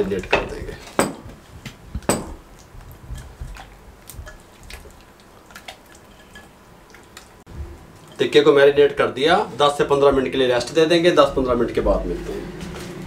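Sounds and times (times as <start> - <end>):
hands squishing meat in marinade: 2.5 - 8.1.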